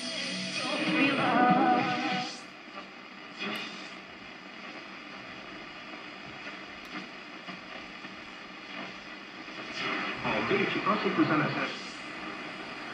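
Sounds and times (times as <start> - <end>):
radio static hiss: 0.0 - 12.9.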